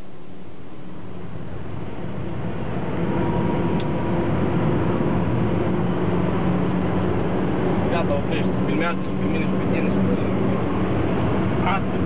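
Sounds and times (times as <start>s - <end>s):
car engine drone: 0.0s - 12.0s
road noise inside car: 0.0s - 12.0s.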